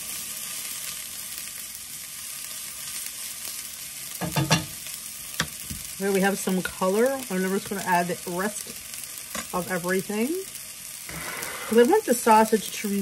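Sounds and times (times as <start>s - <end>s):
vegetables sizzling in a skillet: 0.0s - 13.0s
spatula scraping a pan: 11.0s - 12.1s.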